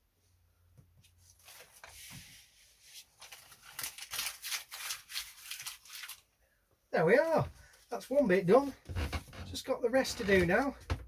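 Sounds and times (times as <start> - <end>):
tape being peeled and rustling: 1.2 - 6.3.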